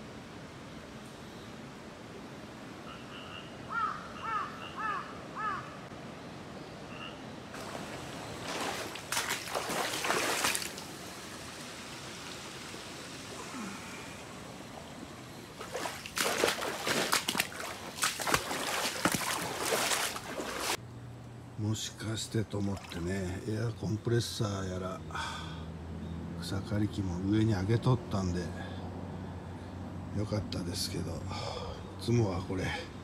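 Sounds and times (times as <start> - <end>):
crow cawing: 2.9 - 5.8
footsteps splashing through water: 7.6 - 10.9, 15.6 - 20.8.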